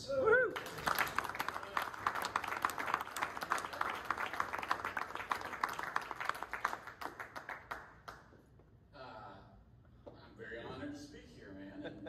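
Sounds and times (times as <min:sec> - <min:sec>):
audience clapping: 0:00.5 - 0:08.5.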